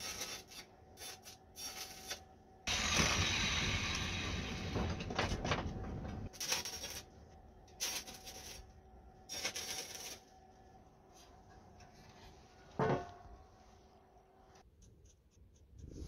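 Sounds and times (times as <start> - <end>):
arc welding crackling: 0.0 - 5.4, 6.3 - 10.3.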